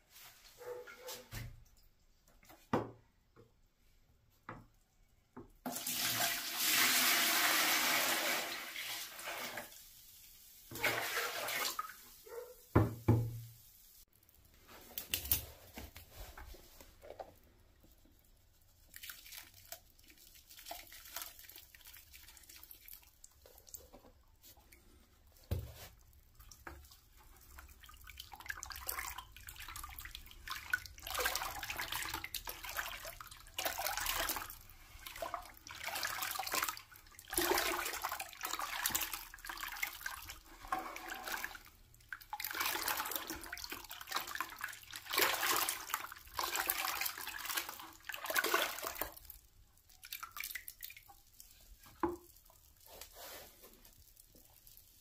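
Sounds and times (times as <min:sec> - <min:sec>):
brush stirring paint in bucket: 0:00.1 - 0:01.3, 0:14.2 - 0:55.0.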